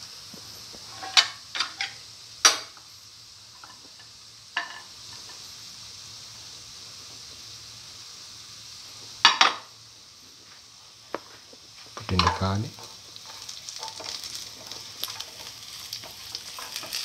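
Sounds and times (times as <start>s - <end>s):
onion sizzling in oil: 0.0s - 17.0s
spatula scraping a pan: 0.8s - 2.0s, 12.2s - 17.0s.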